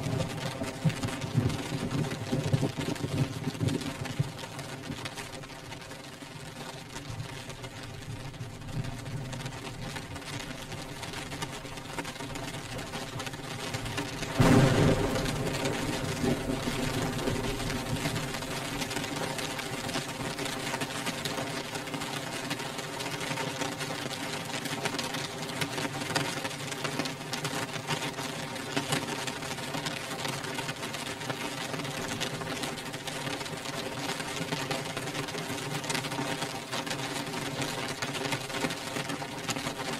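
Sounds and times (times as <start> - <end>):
rain beating on window glass: 0.0 - 39.9.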